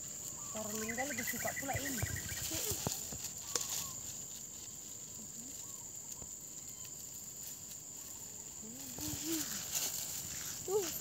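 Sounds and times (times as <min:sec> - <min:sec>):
high-pitched insect drone: 0:00.0 - 0:11.0
faint voice sounds: 0:08.6 - 0:09.9.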